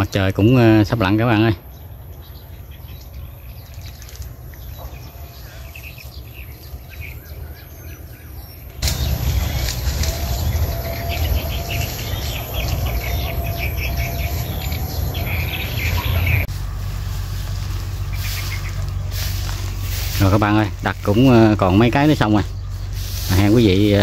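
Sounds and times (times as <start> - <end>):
birds chirping: 0.0 - 24.0
wind rumble on microphone: 8.7 - 21.3
high insect drone: 8.8 - 24.0.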